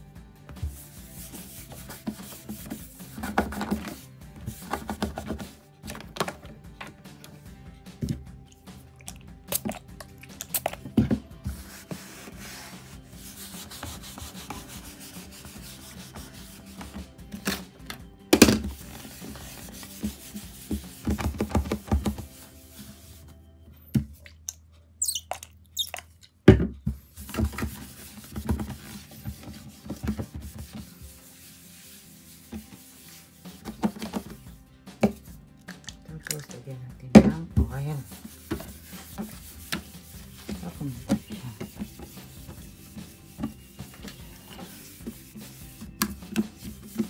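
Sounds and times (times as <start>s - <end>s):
faint background music: 0.0s - 47.0s
rubbing on wooden tabletop: 0.6s - 5.6s, 11.5s - 17.1s, 18.6s - 23.2s, 27.2s - 34.4s, 37.7s - 47.0s.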